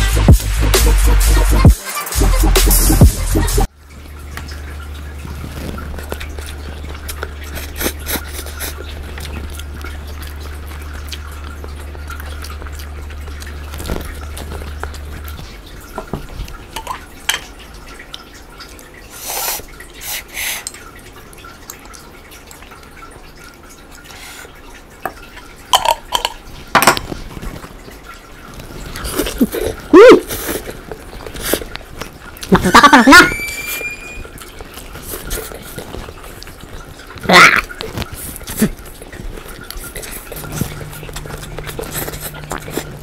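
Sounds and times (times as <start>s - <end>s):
low steady hum: 3.6s - 19.1s, 38.0s - 43.0s
noodles being slurped: 5.1s - 15.6s, 19.1s - 20.7s, 28.5s - 32.6s, 34.4s - 43.0s.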